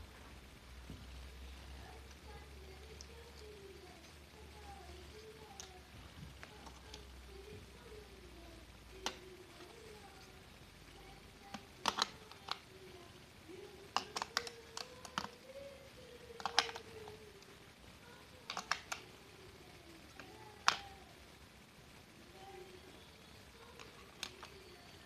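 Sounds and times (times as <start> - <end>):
batteries clicking into plastic compartment: 11.5 - 12.6, 16.4 - 16.9.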